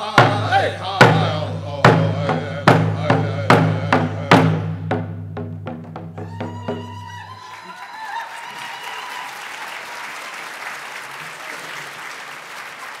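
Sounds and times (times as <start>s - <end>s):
hand drum beat: 0.0s - 7.3s
audience applauding: 6.4s - 13.0s.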